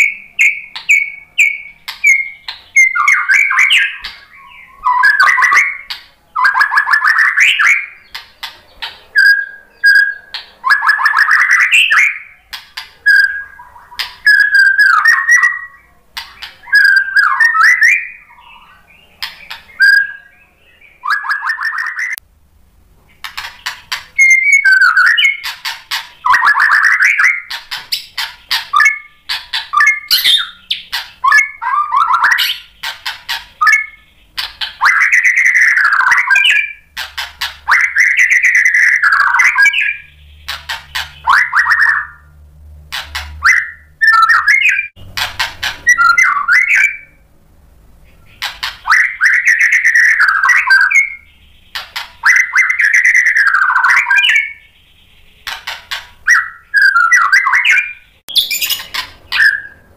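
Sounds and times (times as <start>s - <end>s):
bird whistled notes: 0.0s - 8.0s, 13.1s - 15.9s, 16.6s - 18.7s, 24.2s - 25.5s, 26.2s - 32.8s, 43.4s - 44.9s, 45.8s - 47.2s, 52.2s - 54.8s, 56.3s - 59.9s
songbird rattling trills: 23.2s - 42.2s, 55.3s - 59.8s.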